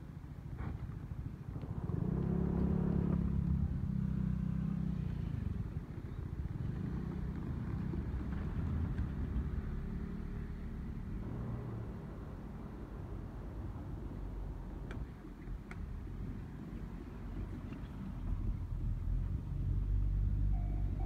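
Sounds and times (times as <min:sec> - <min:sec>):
vehicle engine running: 0:13.7 - 0:21.0.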